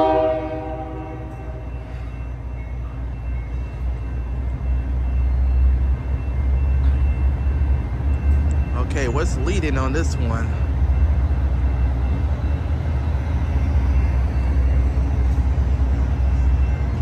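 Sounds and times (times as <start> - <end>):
locomotive horn: 0.0 - 1.7
low rumble of locomotives: 0.0 - 17.0.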